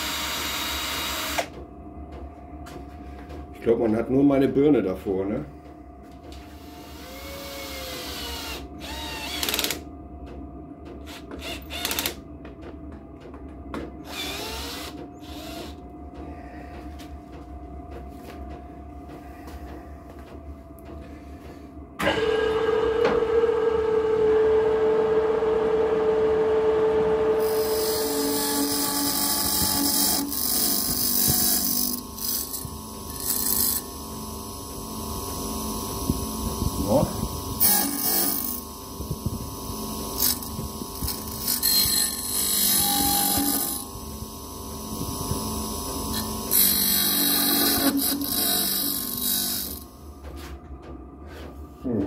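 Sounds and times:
metal lathe running: 0:27.2 - 0:34.2, 0:37.6 - 0:38.7, 0:40.0 - 0:49.9.

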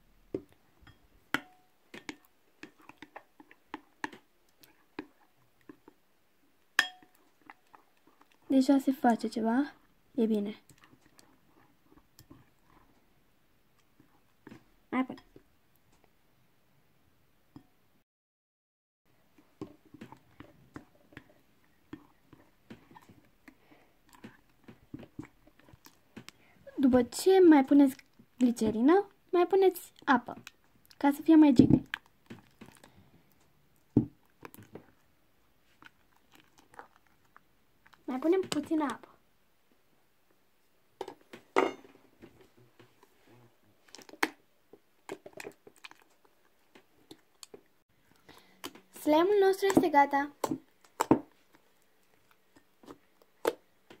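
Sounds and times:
slime squelching in a bowl: 0:00.3 - 0:16.1, 0:19.2 - 0:39.2, 0:42.8 - 0:54.0.

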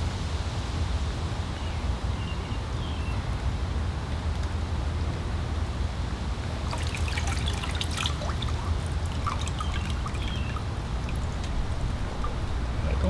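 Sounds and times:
water splashing and dripping: 0:06.5 - 0:13.0
low rumble: 0:10.6 - 0:13.0.

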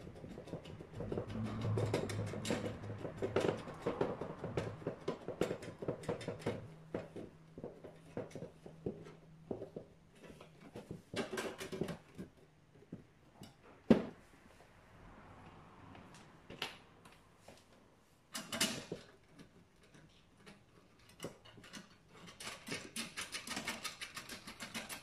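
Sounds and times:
screwdriver clicks and metal rattles: 0:18.3 - 0:25.0.

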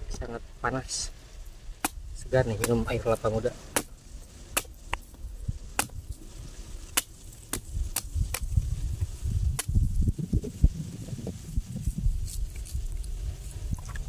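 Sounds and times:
machete chopping coconut: 0:01.8 - 0:03.0, 0:03.7 - 0:05.0, 0:05.8 - 0:06.0, 0:06.9 - 0:08.5, 0:09.6 - 0:09.8.

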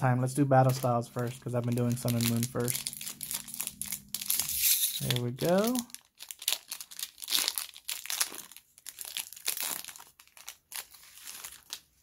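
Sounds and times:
foil wrapper crinkling: 0:00.5 - 0:12.0.

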